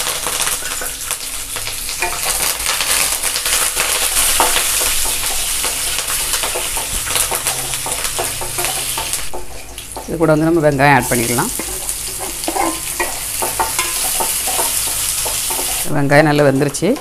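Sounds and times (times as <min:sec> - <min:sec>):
hot oil sizzling and crackling: 0:00.0 - 0:17.0
wooden spatula scraping: 0:11.0 - 0:17.0.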